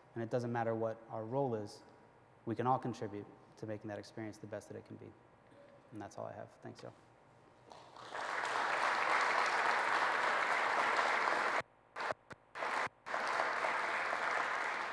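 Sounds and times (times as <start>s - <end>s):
audience applauding: 7.7s - 14.9s.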